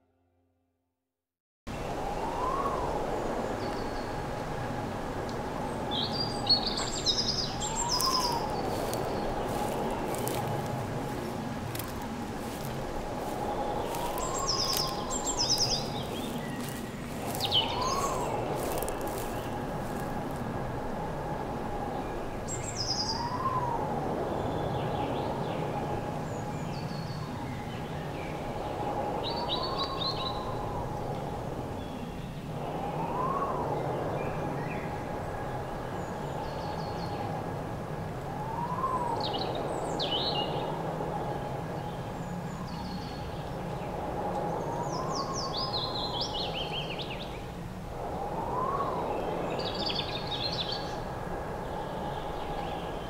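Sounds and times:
birds chirping: 0:06.0 - 0:20.5.

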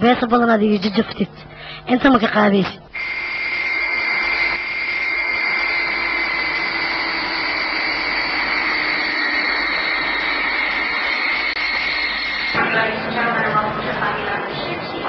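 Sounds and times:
jet engines rushing and whining: 0:03.0 - 0:13.1.

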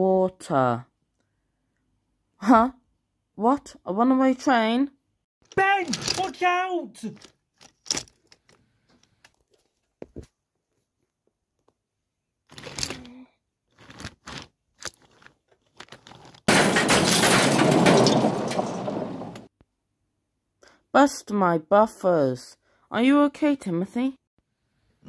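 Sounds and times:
toy train crash: 0:05.5 - 0:06.4, 0:16.5 - 0:19.5.

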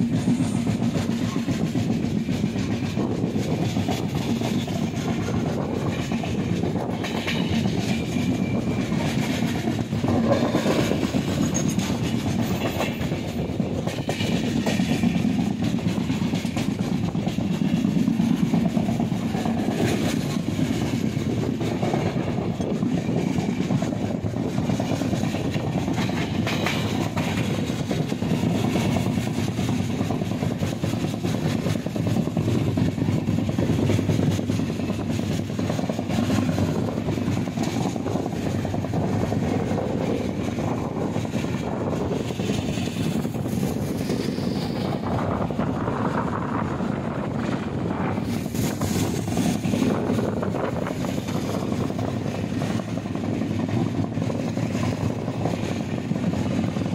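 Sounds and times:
train wheels rumbling on rails: 0:00.0 - 0:56.9
faint clicks over rail joints: 0:08.9 - 0:40.6.

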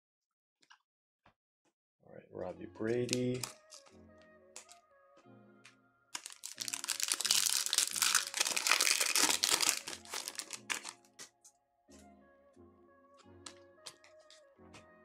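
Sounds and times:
background music: 0:02.2 - 0:15.0
foil wrapper crinkling: 0:03.3 - 0:03.9, 0:06.2 - 0:11.3.

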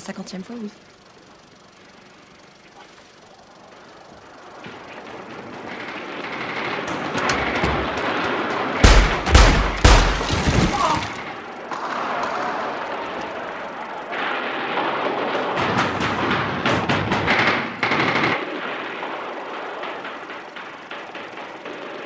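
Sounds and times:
pistol shots: 0:07.7 - 0:11.3.

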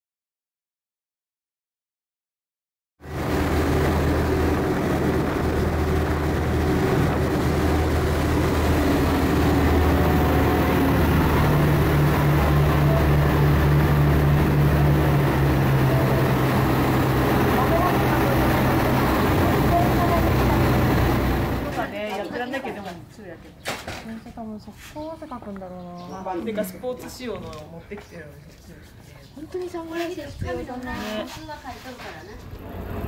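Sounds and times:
rushing water and air: 0:03.0 - 0:21.9
ferry engine drone: 0:03.0 - 0:22.1, 0:32.2 - 0:33.0.

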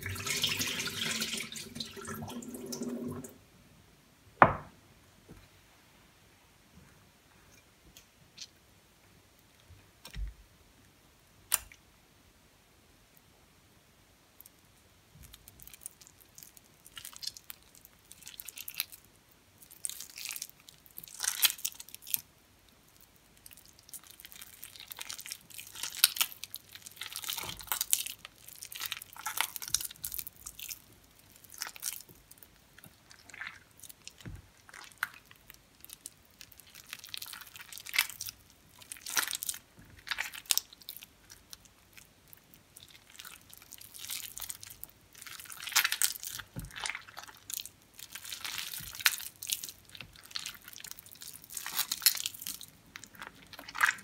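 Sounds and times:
wet soap squishing and crackling: 0:14.4 - 0:54.0.

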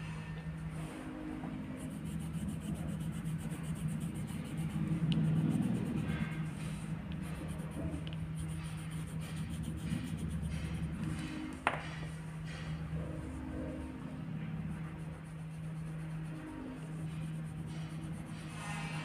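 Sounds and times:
steady low hum: 0:00.0 - 0:19.0
pencil scratching on paper: 0:01.6 - 0:11.4, 0:14.6 - 0:19.0.

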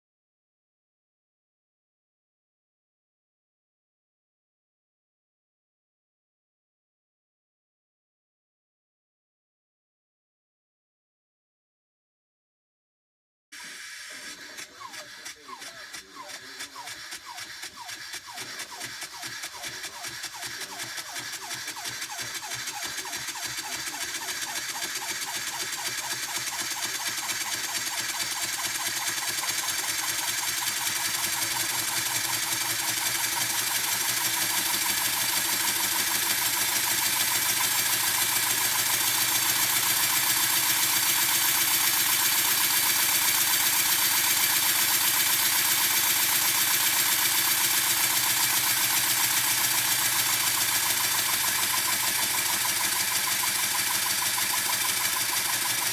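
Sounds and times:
hiss of air: 0:13.6 - 0:17.0
steam engine chuffing: 0:13.6 - 0:55.9.

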